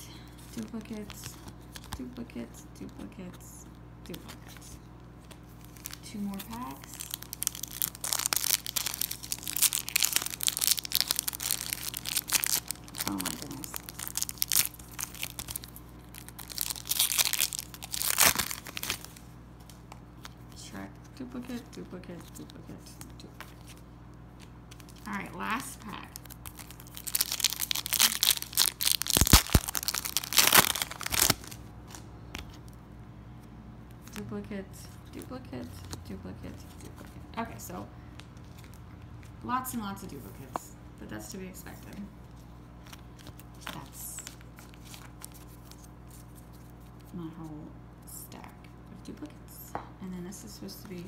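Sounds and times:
foil wrapper crinkling: 0:05.2 - 0:20.4, 0:24.4 - 0:32.0, 0:42.8 - 0:47.1.

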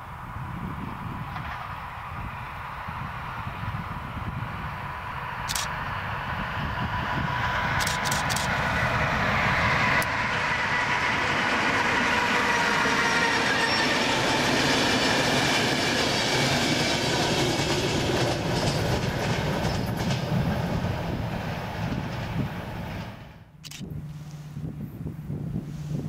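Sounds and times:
train wheels rumbling on rails: 0:00.0 - 0:26.0
sharp clicks: 0:05.5 - 0:05.7, 0:07.8 - 0:08.5, 0:23.6 - 0:23.9
rail-joint clatter: 0:17.6 - 0:20.5.

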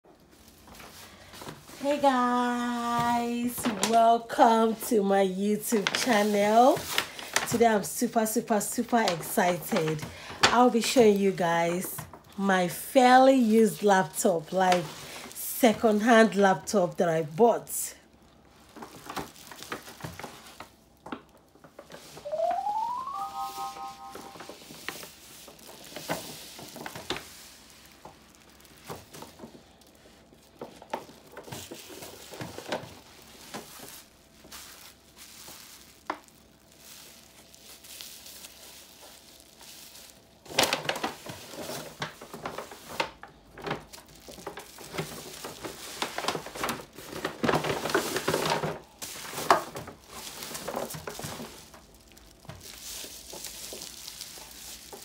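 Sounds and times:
bubble wrap crinkling: 0:00.0 - 0:55.0.

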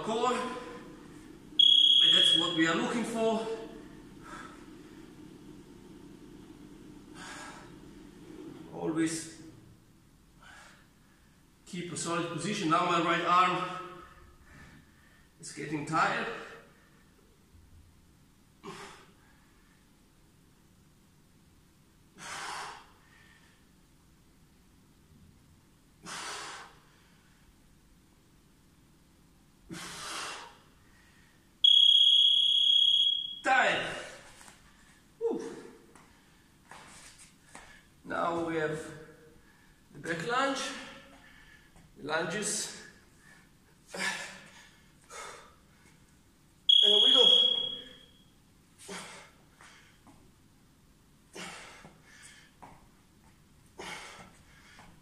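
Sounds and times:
high electronic timer beep: 0:01.6 - 0:02.8, 0:31.6 - 0:33.5, 0:46.7 - 0:48.2
man breathing hard: 0:07.0 - 0:08.0, 0:26.0 - 0:27.5, 0:29.7 - 0:31.5, 0:40.7 - 0:41.9, 0:51.3 - 0:52.7, 0:53.8 - 0:55.0.

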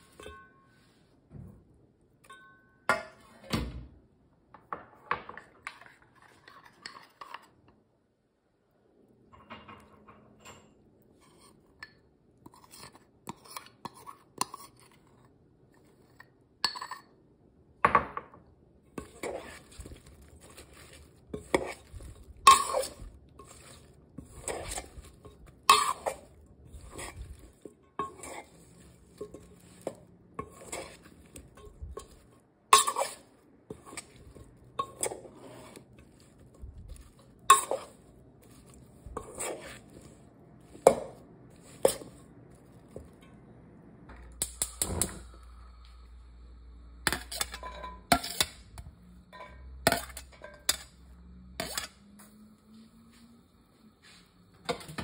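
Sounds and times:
metal spoon clinking in steel bowl: 0:00.0 - 0:00.8, 0:02.2 - 0:03.2, 0:21.4 - 0:35.8, 0:37.4 - 0:39.8, 0:47.1 - 0:51.0.

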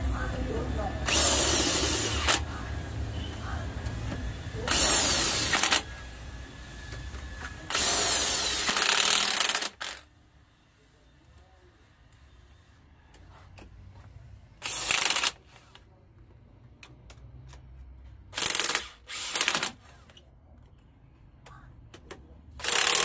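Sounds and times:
power tool running: 0:00.1 - 0:10.1, 0:14.6 - 0:15.4, 0:18.3 - 0:19.8, 0:22.6 - 0:23.0.

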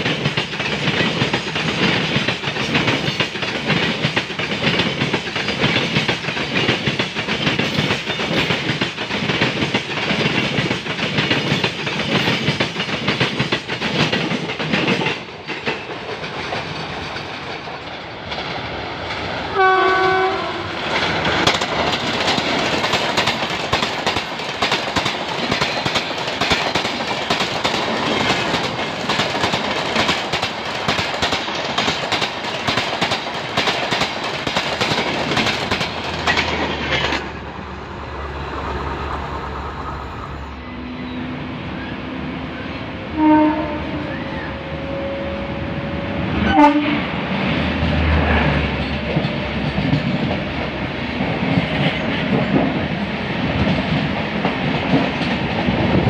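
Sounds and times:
goods wagons clattering on rails: 0:00.0 - 0:17.8, 0:20.9 - 0:37.4, 0:48.7 - 0:52.8
passenger coaches clickety-clack: 0:00.0 - 0:56.0
locomotive horn: 0:19.5 - 0:20.8, 0:40.5 - 0:47.1.

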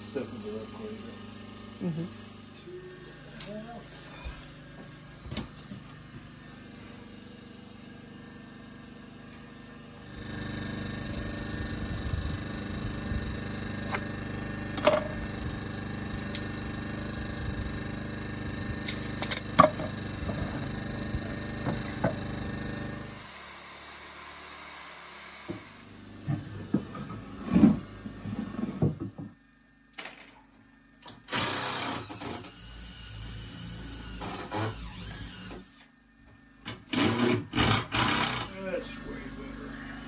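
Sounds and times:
steady hum: 0:09.9 - 0:22.2, 0:35.0 - 0:40.0.

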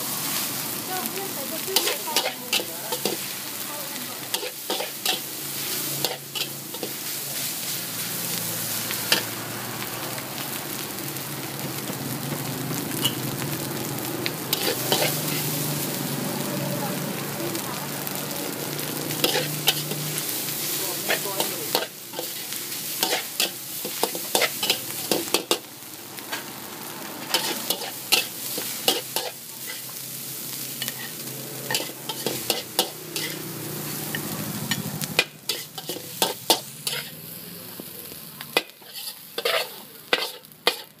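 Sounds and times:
food sizzling in a wok: 0:00.0 - 0:41.0
metal spatula scraping wok: 0:01.6 - 0:09.4, 0:13.0 - 0:13.2, 0:14.5 - 0:15.9, 0:18.8 - 0:25.7, 0:27.2 - 0:37.4, 0:38.5 - 0:41.0.

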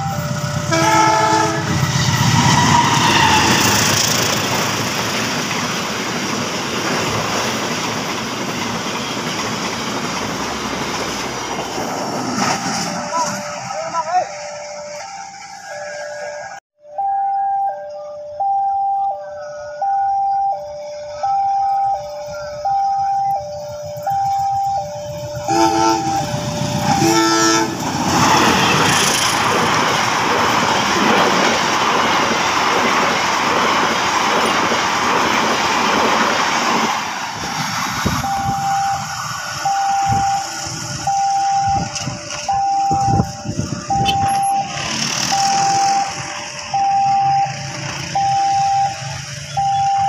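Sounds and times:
level crossing two-tone alarm: 0:00.0 - 0:01.5, 0:12.6 - 0:27.7, 0:38.1 - 0:50.0
train passing: 0:00.0 - 0:50.0.

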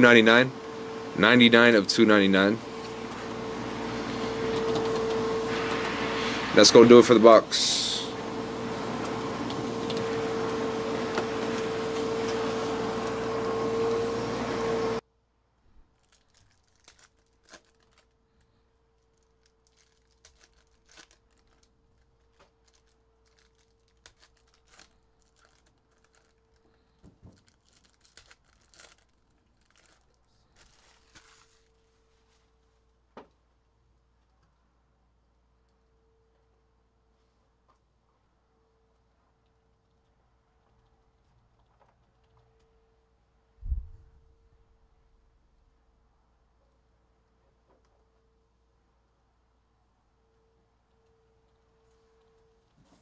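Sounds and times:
steady hiss with faint hum: 0:00.0 - 0:14.2
foil wrappers and cards rustling: 0:06.7 - 0:13.3, 0:15.8 - 0:32.6.

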